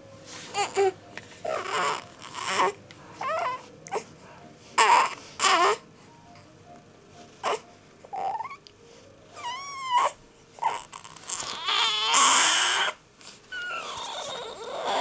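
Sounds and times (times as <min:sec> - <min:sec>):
infant crying: 0:00.5 - 0:04.1, 0:04.8 - 0:05.8, 0:07.4 - 0:08.6, 0:09.4 - 0:15.0.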